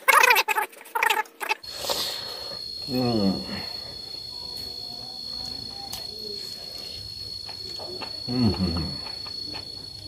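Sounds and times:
cricket trill: 0:00.0 - 0:10.0
man chewing food: 0:05.5 - 0:10.0.

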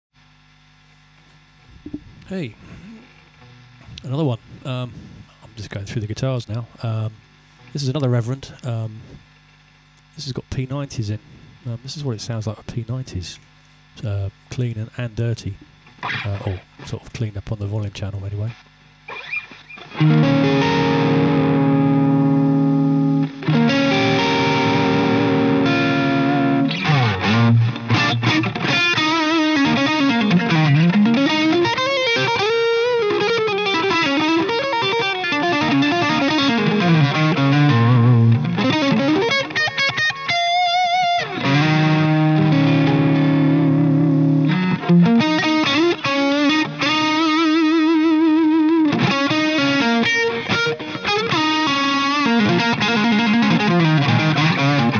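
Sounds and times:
overdriven electric guitar: 0:15.7 - 0:16.8, 0:18.7 - 0:54.9.

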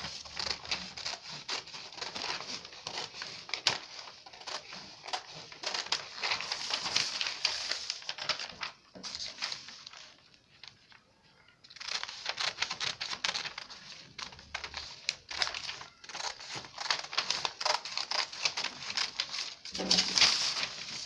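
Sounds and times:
paper crinkling and rustling: 0:00.0 - 0:21.0
scissors cutting paper: 0:00.2 - 0:07.5, 0:11.7 - 0:21.0.

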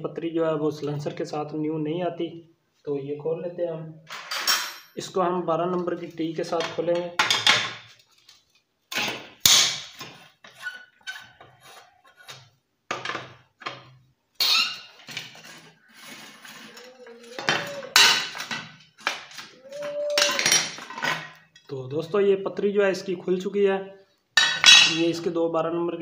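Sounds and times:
short squeaks: 0:14.4 - 0:16.8
wrench clinking on metal: 0:24.4 - 0:25.1.

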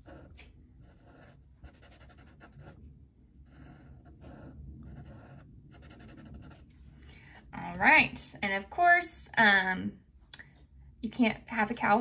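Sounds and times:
marker scratching on paper: 0:00.0 - 0:02.8, 0:03.5 - 0:06.8.

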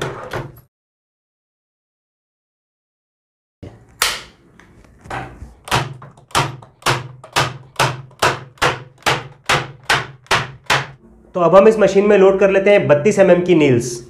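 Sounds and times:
nail gun firing into plywood: 0:05.7 - 0:11.0.

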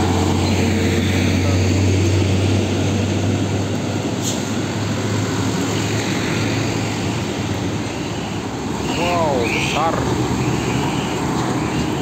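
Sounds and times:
trucks driving past: 0:00.0 - 0:12.0
tyre and road noise: 0:00.0 - 0:12.0.

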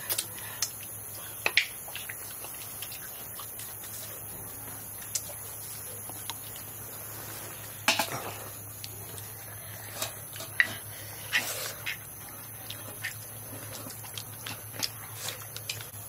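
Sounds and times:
slurping and chewing: 0:00.0 - 0:16.0.

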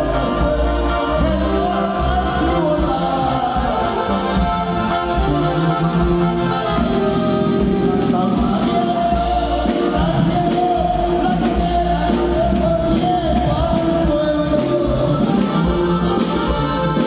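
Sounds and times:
accordion-led latin band music: 0:00.0 - 0:17.0.

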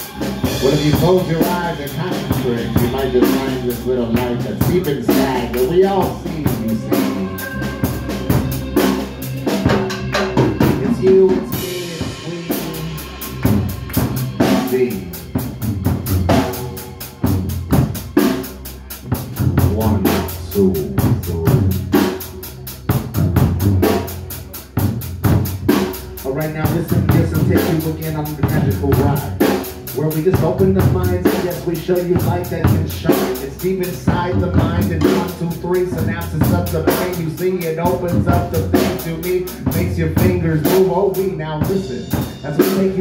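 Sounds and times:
keyboard synthesizer: 0:00.0 - 0:32.2
drum kit playing a busy beat: 0:00.0 - 0:43.0.

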